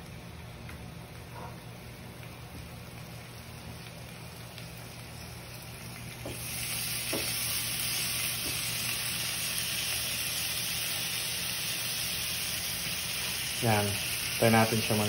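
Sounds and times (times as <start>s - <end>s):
steak sizzling on grill pan: 2.9s - 15.0s.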